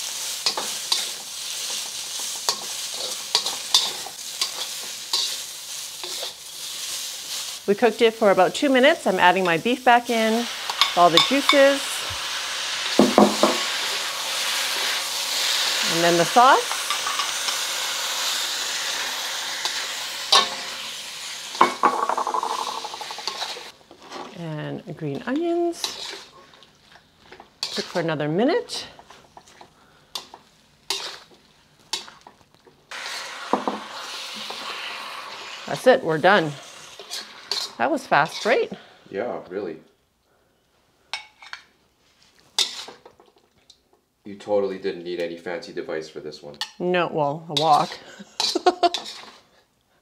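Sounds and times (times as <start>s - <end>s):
spatula scraping a wok: 0.0s - 24.4s, 25.2s - 26.6s, 27.2s - 38.8s, 41.1s - 43.2s, 47.6s - 49.6s
food sizzling in hot oil: 0.0s - 39.0s, 41.1s - 43.4s, 47.5s - 49.6s
utensil knocking against wok: 13.0s - 13.6s.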